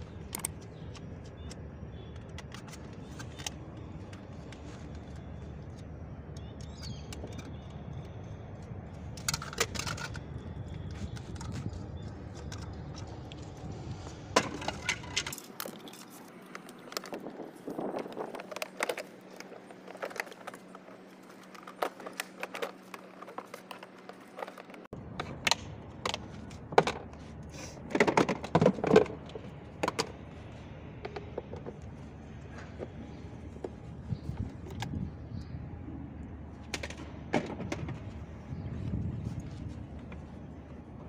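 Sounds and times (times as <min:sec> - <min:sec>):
plastic toy parts clicking and knocking: 0:00.2 - 0:04.6, 0:06.4 - 0:13.1.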